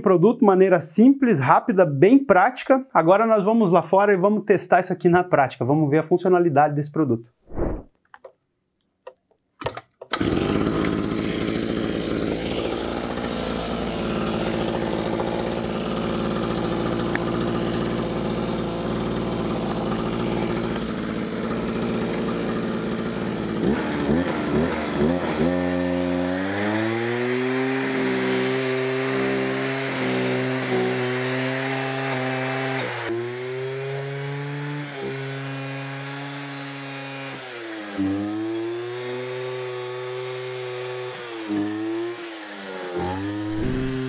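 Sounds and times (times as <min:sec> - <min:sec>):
brushcutter pull-start: 0:09.6 - 0:44.0
brushcutter engine running: 0:10.1 - 0:44.0.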